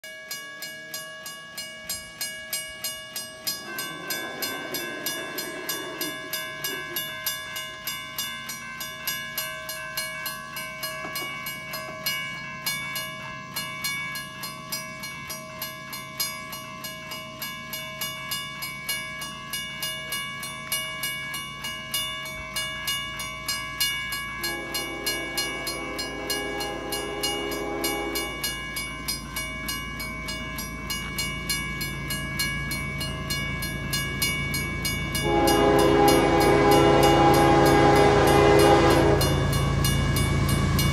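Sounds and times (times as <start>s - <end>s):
crossing warning bell ringing: 0.0s - 40.9s
train rumbling: 1.2s - 40.9s
train horn: 24.4s - 28.6s, 35.2s - 40.9s.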